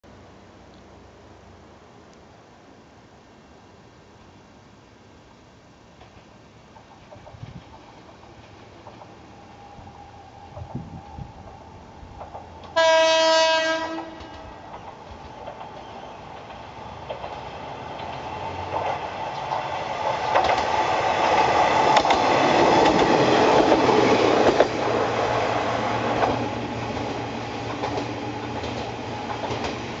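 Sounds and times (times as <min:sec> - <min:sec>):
diesel railcar passing: 0:00.1 - 0:30.0
wheels clicking on track: 0:06.0 - 0:09.4, 0:10.5 - 0:12.8, 0:13.8 - 0:25.2, 0:26.1 - 0:30.0.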